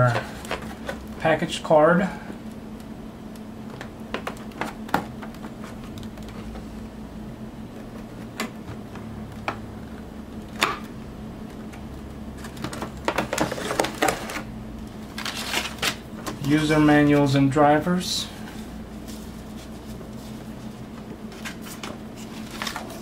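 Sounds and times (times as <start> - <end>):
plastic packaging clicking and creaking: 12.4 - 14.5
paper and foil packets crinkling: 15.1 - 16.0.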